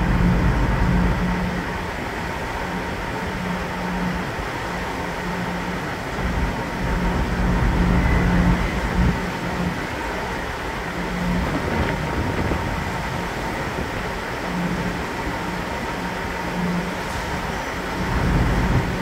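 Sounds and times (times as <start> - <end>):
ferry engines droning: 0.0 - 19.0
wind buffeting microphone: 5.9 - 19.0.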